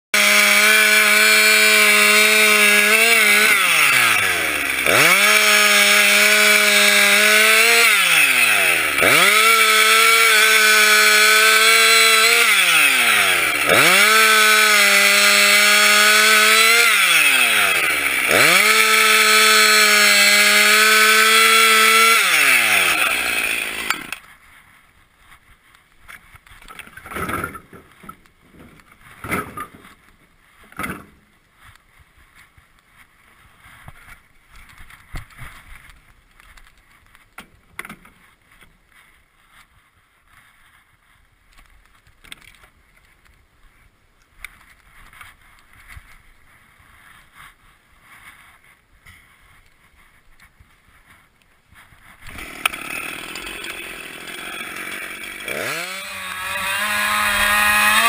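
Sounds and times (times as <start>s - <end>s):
chainsaw cutting logs: 0.2s - 24.4s, 26.3s - 31.3s, 51.8s - 58.0s.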